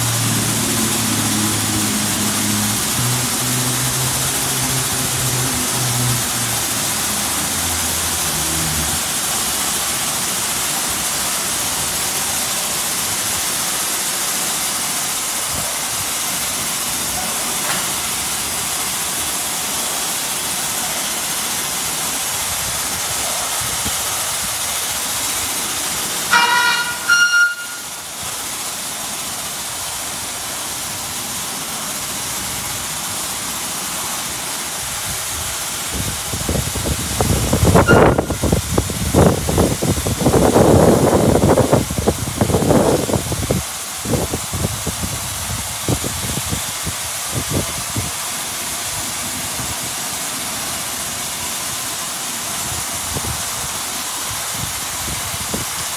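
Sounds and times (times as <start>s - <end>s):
car wash spraying water: 0.0s - 55.9s
brief high multi-pitch tone: 26.3s - 28.0s, 37.8s - 38.4s.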